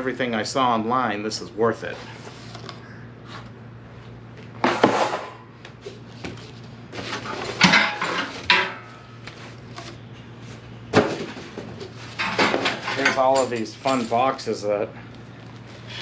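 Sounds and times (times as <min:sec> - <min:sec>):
small metal parts clinking: 0:12.2 - 0:14.4.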